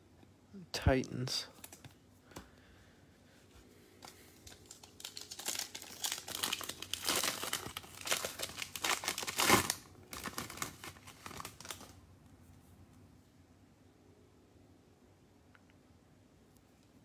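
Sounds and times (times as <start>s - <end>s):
plastic wrapper crinkling and tearing: 4.0s - 12.0s.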